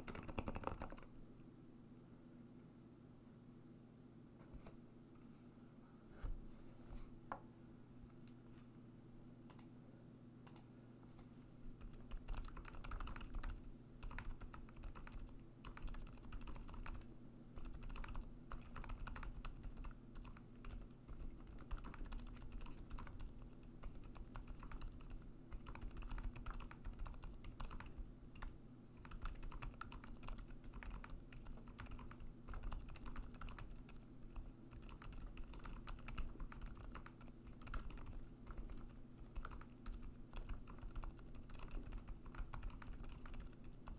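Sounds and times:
muted mechanical keyboard typing: 0:00.0 - 0:01.1, 0:11.8 - 0:43.9.

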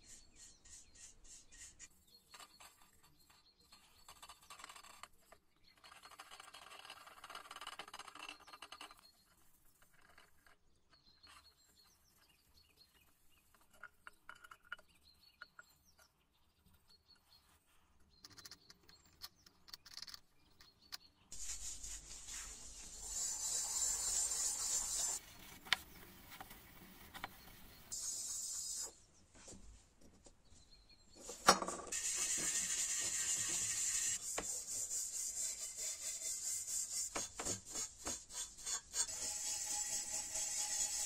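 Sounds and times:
steel wool scrubbing metal: 0:21.4 - 0:25.2, 0:31.9 - 0:41.0
brush strokes on metal: 0:21.4 - 0:29.6, 0:31.3 - 0:41.0.

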